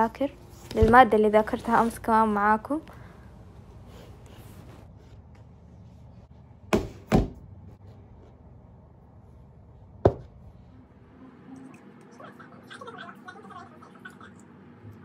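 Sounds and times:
low steady hum: 0.0 - 15.0
objects knocking on desk: 10.0 - 10.3.

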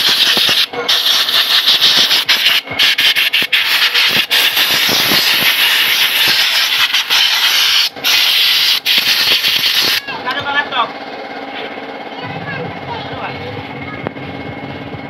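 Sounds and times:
spray nozzle hissing: 0.0 - 10.0.

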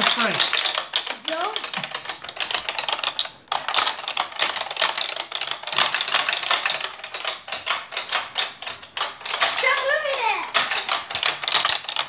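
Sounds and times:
plastic handles clattering: 0.0 - 12.0.

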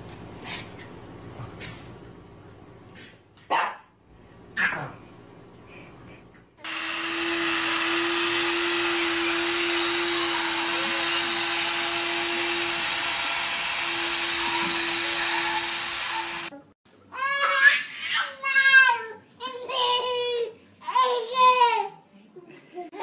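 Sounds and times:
whirring motor: 6.7 - 16.6.

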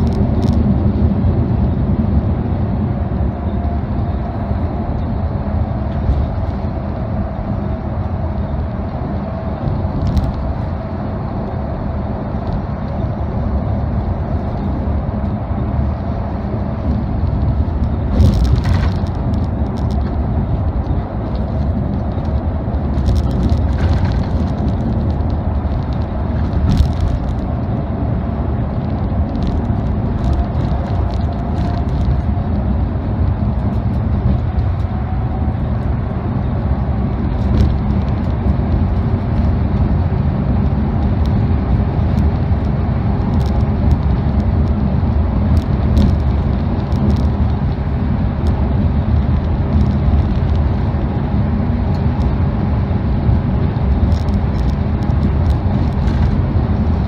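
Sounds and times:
engine and tyre rumble: 0.0 - 57.0.

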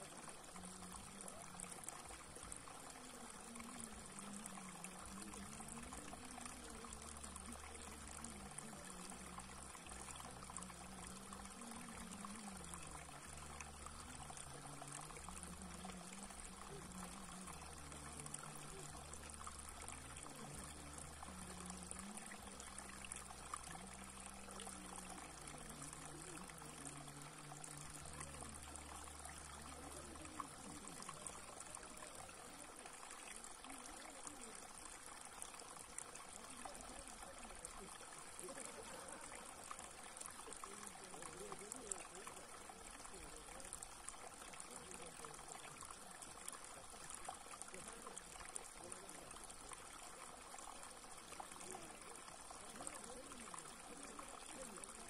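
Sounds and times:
water trickling over rock: 0.0 - 55.0.

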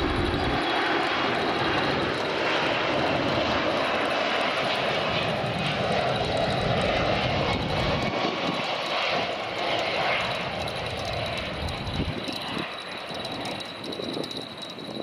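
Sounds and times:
jet engines rushing: 0.0 - 15.0.

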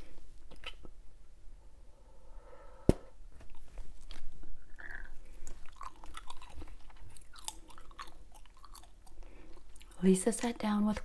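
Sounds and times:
gum chewing with wet smacks: 0.4 - 1.0, 3.5 - 10.7.

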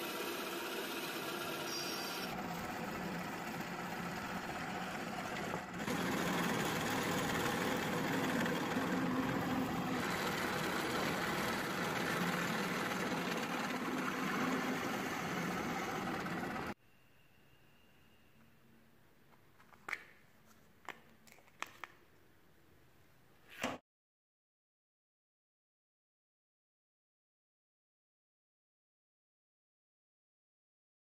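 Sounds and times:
drill bit grinding metal: 0.0 - 2.6, 3.9 - 16.8
drill press motor whirring: 0.0 - 16.8.

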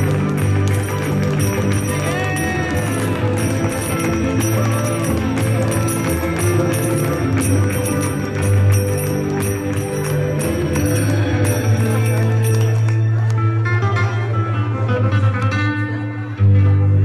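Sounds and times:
jingling percussion: 0.0 - 13.0.

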